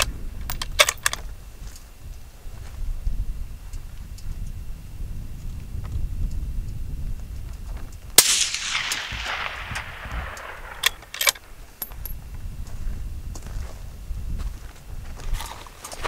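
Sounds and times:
rifle bolt clicks: 0:00.0 - 0:01.2, 0:08.2 - 0:12.1
rifle shot: 0:08.2 - 0:12.0.

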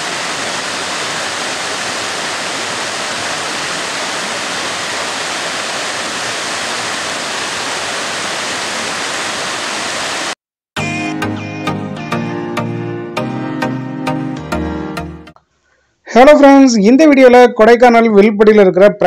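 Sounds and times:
waterfall rushing: 0:00.0 - 0:10.4.

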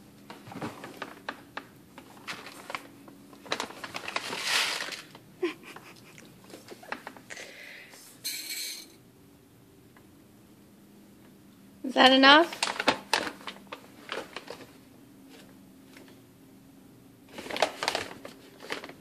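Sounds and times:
paper bag crinkling: 0:00.2 - 0:05.6, 0:06.5 - 0:07.2, 0:12.5 - 0:16.0, 0:17.3 - 0:19.0
rice pouring rush: 0:04.2 - 0:05.1.

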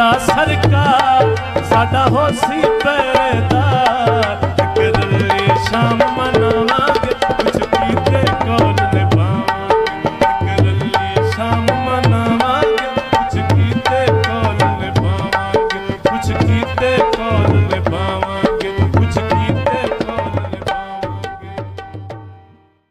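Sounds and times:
tabla playing fast rhythm: 0:00.0 - 0:22.6.

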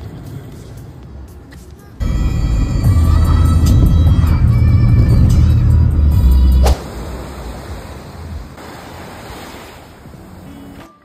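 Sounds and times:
music with strong bass line: 0:02.0 - 0:06.6.

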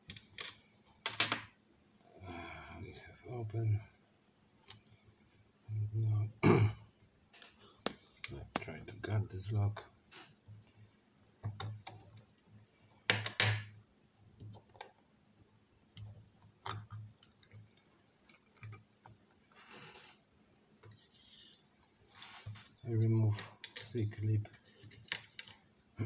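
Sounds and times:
metal clicks and clinks: 0:22.6 - 0:25.7.

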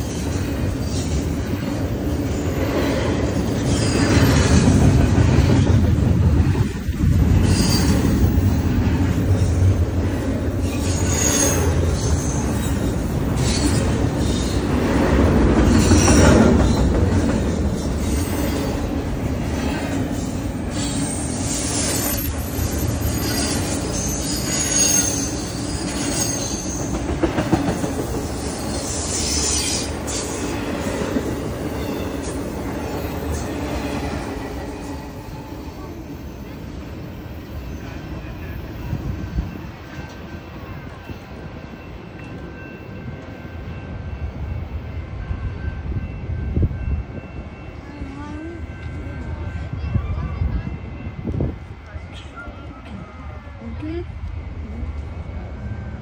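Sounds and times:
freight train rolling past: 0:00.0 - 0:56.0
high-pitched wheel squeals: 0:10.6 - 0:14.6, 0:20.2 - 0:27.0, 0:28.4 - 0:30.5.

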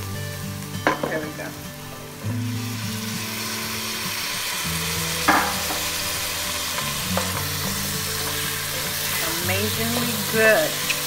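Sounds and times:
vegetables sizzling in a pot: 0:00.0 - 0:11.0
sharp knock: 0:05.3 - 0:05.8.

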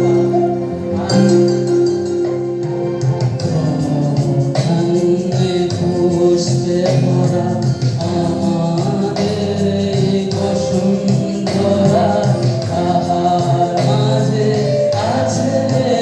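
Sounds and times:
instrumental accompaniment with beat: 0:00.0 - 0:16.0
man singing into a microphone: 0:03.2 - 0:16.0.

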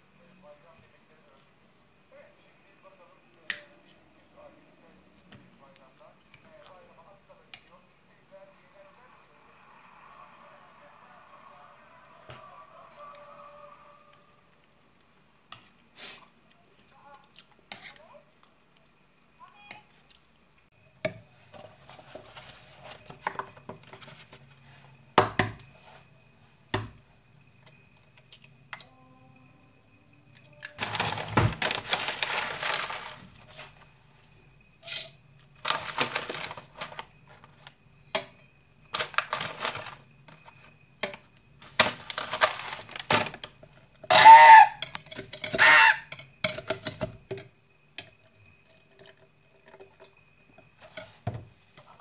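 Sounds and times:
rolled oats rattling into jug: 0:30.8 - 0:33.7.

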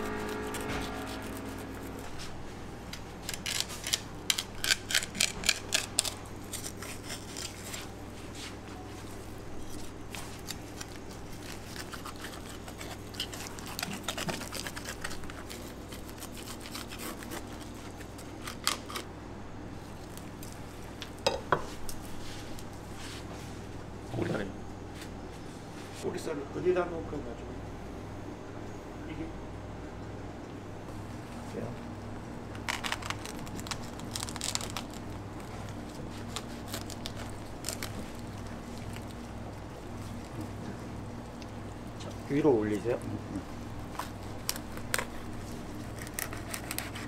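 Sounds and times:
knife scraping through fish: 0:03.3 - 0:08.0, 0:11.4 - 0:18.1, 0:44.0 - 0:47.0.

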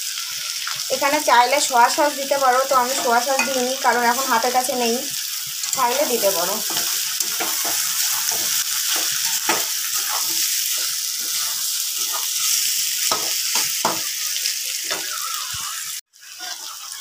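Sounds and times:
food sizzling in hot oil: 0:00.0 - 0:17.0
metal spatula scraping pan: 0:02.8 - 0:04.6, 0:05.6 - 0:14.2.

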